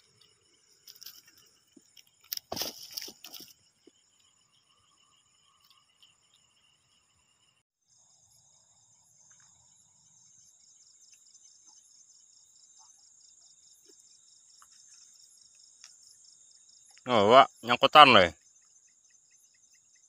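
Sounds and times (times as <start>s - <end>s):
night insects trilling: 0.0s - 20.0s.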